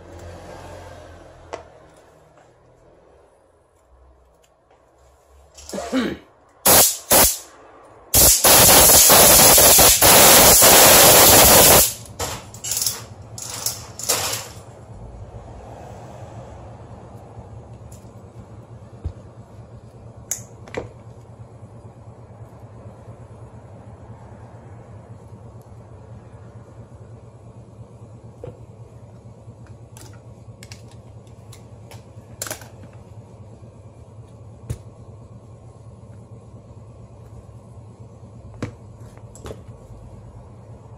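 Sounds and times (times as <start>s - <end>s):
steady low hum: 2.4s - 40.9s
compressed-air blast with rattling flutter: 6.6s - 7.5s, 8.1s - 12.1s
short hissing air puffs: 6.6s - 7.5s, 8.1s - 12.0s.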